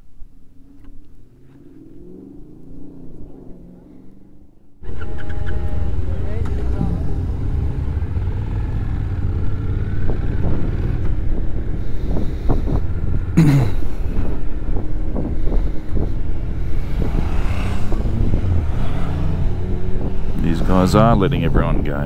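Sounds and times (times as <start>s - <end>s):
vehicle passing by: 0.6s - 22.0s
motorcycle engine running: 4.8s - 22.0s
wind buffeting microphone: 4.9s - 22.0s.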